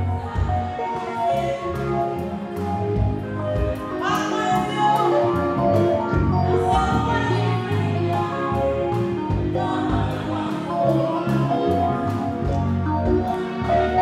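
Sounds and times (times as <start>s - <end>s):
woman singing into microphone: 0.0s - 2.3s, 3.9s - 5.6s, 6.4s - 12.7s, 13.4s - 14.0s
bass: 0.0s - 14.0s
drum kit steady beat: 0.0s - 14.0s
keyboard: 0.0s - 14.0s.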